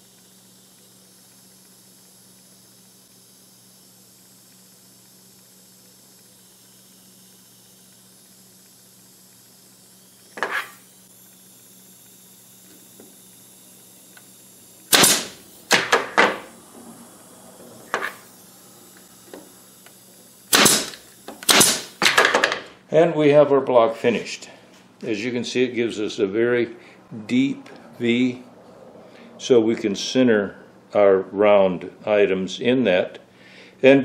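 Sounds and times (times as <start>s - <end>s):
nail gun shots with air hiss: 10.2s - 10.9s, 14.9s - 16.6s, 17.8s - 18.3s, 20.4s - 22.7s.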